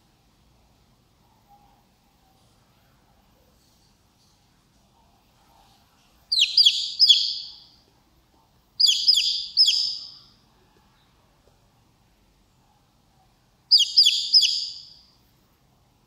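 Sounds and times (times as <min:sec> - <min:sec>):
baby chick peeping: 0:06.3 - 0:07.7, 0:08.8 - 0:10.4, 0:13.7 - 0:15.1.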